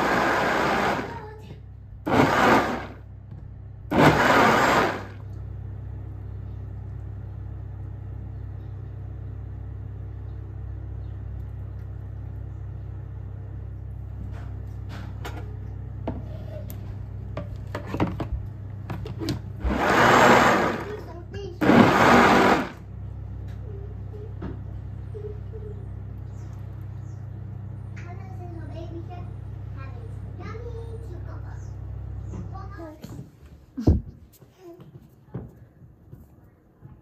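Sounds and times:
blender running: 0.0 - 1.3, 2.1 - 3.1, 3.9 - 5.4, 19.6 - 22.9.

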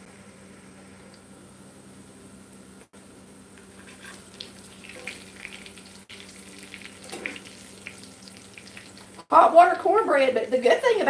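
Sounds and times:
spatula and fork turning food: 3.6 - 9.3
food sizzling in oil: 3.6 - 9.4.

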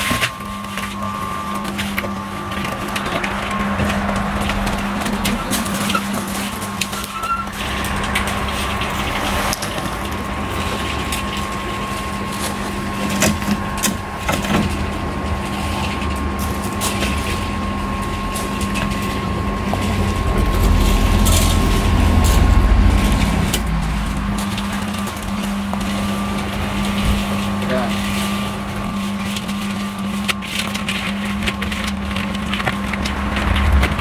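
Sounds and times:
cement mixer humming: 0.0 - 34.0
gravel crunching underfoot: 0.0 - 34.0
wet concrete scraped: 0.0 - 34.0
low rumble: 17.1 - 27.2, 32.8 - 34.0.

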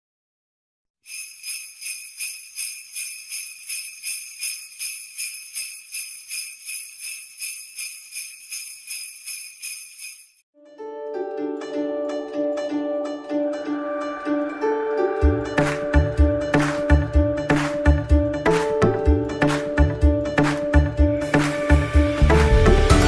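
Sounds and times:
sleigh bells shaken: 1.1 - 10.4.

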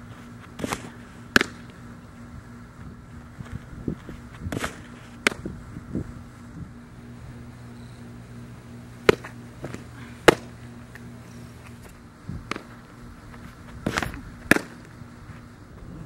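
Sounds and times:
faint steady hum: 0.0 - 16.0
softballs smacking into mitt: 0.6 - 1.7, 4.5 - 5.5, 9.0 - 10.5, 12.4 - 12.8, 13.8 - 14.9.

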